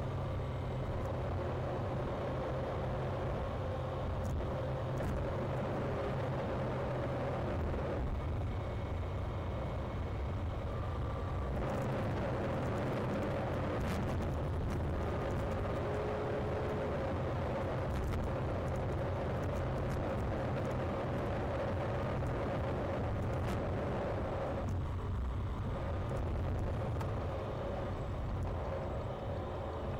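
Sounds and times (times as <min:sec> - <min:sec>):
car road noise from inside: 0:00.0 - 0:29.9.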